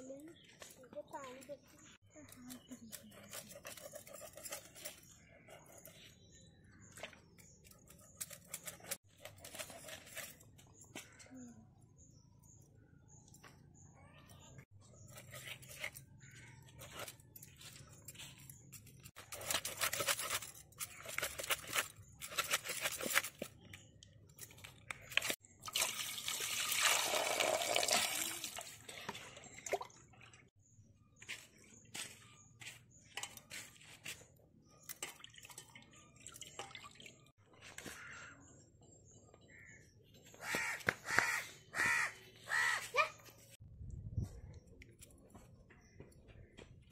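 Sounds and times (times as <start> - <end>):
knife scraping fish scales: 2.8 - 6.0, 18.4 - 23.5.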